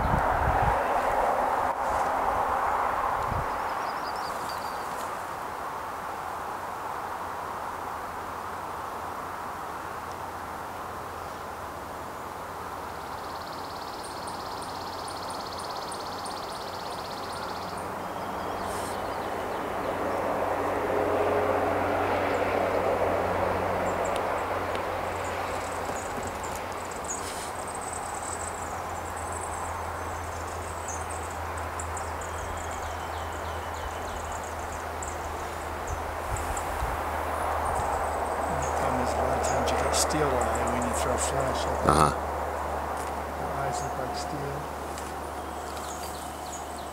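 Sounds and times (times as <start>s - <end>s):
distant vehicle rumble: 11.6s - 46.9s.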